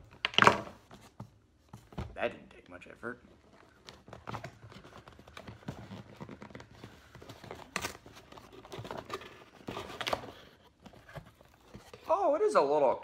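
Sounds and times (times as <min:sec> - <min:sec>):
cardboard rustling and scraping: 0:03.7 - 0:12.2.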